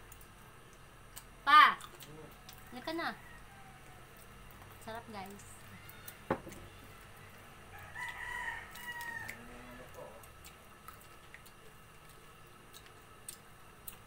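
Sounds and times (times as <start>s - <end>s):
rooster crowing: 2.5s - 4.2s, 5.7s - 10.2s.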